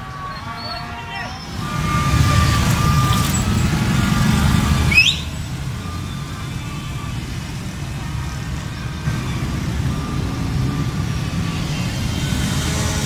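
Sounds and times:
street traffic: 0:00.0 - 0:13.0
loud engine rumble: 0:01.1 - 0:13.0
short rising whistle: 0:04.5 - 0:06.3.

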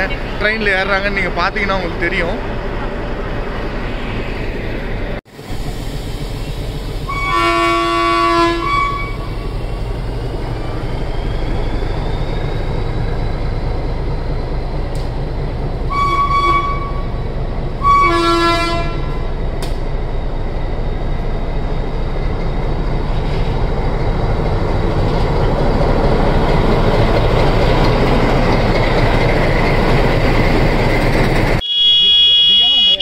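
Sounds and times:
train horn blasts: 0:07.1 - 0:09.3, 0:15.9 - 0:17.1, 0:17.8 - 0:19.2, 0:31.6 - 0:33.0.

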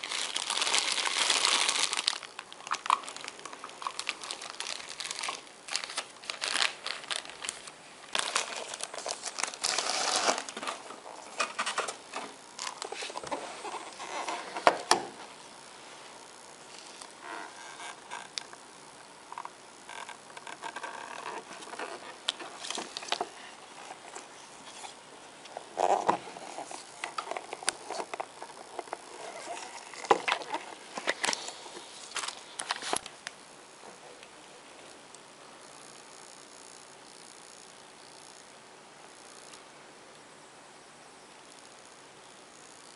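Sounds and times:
plastic bags crinkling: 0:00.0 - 0:15.0, 0:19.9 - 0:33.2.

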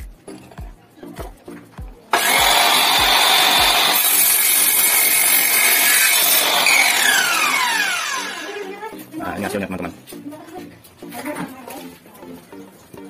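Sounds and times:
miter saw motor whine: 0:02.2 - 0:08.7
saw cutting wood: 0:02.2 - 0:08.8.

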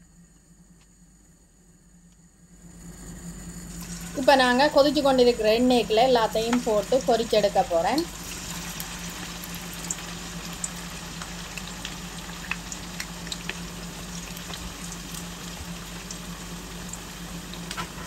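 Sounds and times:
oil sizzling with pops: 0:03.7 - 0:18.0.

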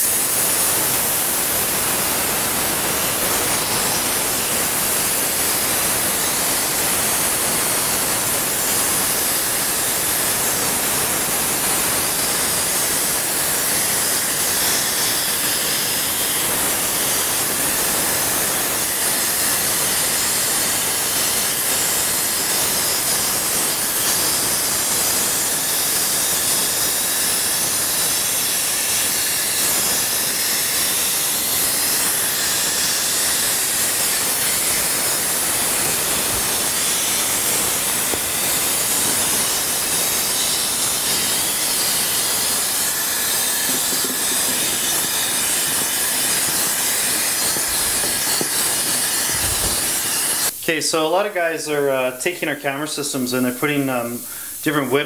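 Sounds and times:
compressed air hissing: 0:26.6 - 0:51.0, 0:52.3 - 0:55.0.

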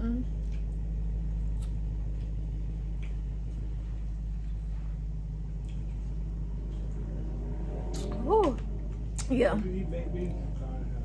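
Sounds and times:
low rumbling hum: 0:00.0 - 0:11.0.

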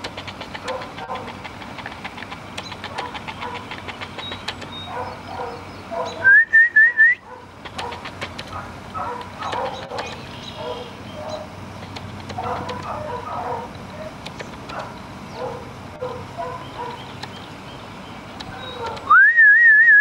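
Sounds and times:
person whistling: 0:06.2 - 0:07.2, 0:19.1 - 0:20.0.

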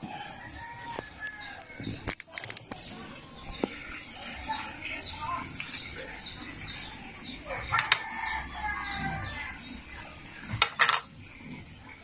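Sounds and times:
rooster crowing: 0:00.0 - 0:01.8, 0:07.5 - 0:09.6.

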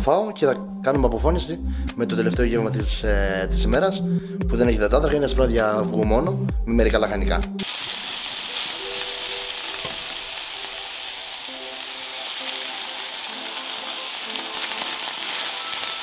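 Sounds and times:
spinach sizzling in a frying pan: 0:07.6 - 0:16.0
spatula stirring in a pan: 0:12.6 - 0:16.0.

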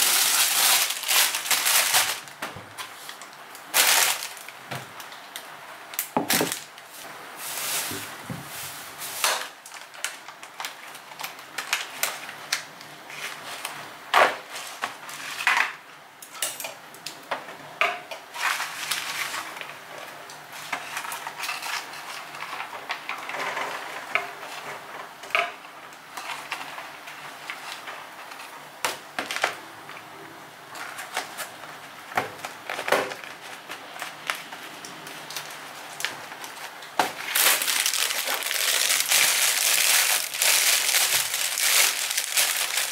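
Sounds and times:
plastic bag crinkling: 0:00.0 - 0:04.6, 0:35.2 - 0:42.9.

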